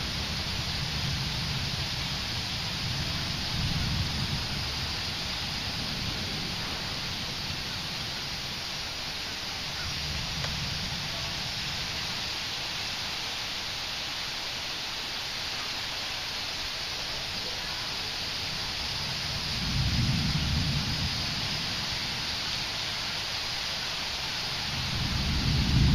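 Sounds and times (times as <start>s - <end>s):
steady rain falling: 0.0s - 25.9s.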